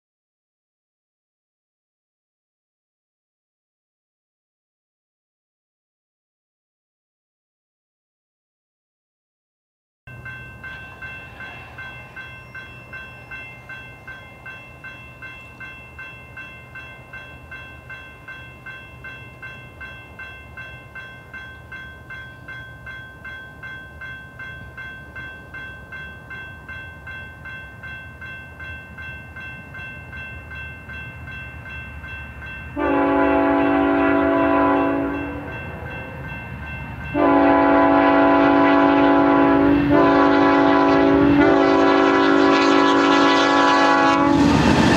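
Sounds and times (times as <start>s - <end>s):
crossing bell ringing: 10.1s - 44.5s
train air horn blasts: 32.8s - 36.1s, 37.1s - 44.8s.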